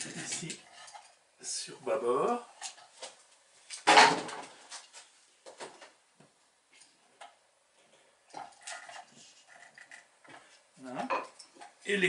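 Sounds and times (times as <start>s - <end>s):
handling knocks and clatter: 3.8s - 4.9s.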